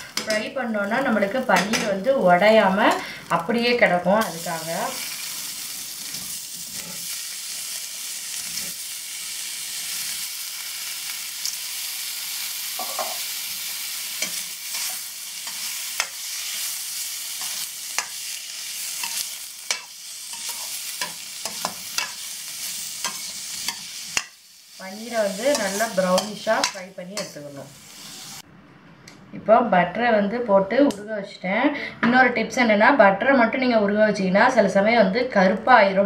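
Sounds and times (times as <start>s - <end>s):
cheese cubes sizzling in butter: 4.2s - 28.4s
spatula clicking and scraping: 19.0s - 22.2s, 23.0s - 24.4s.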